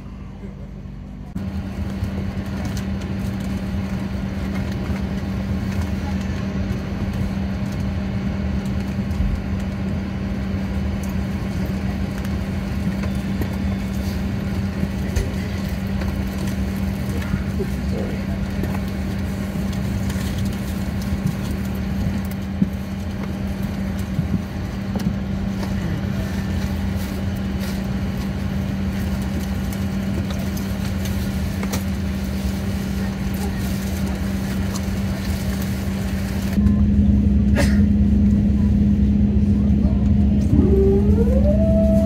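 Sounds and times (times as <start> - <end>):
aircraft cabin hum: 0.0 - 42.0.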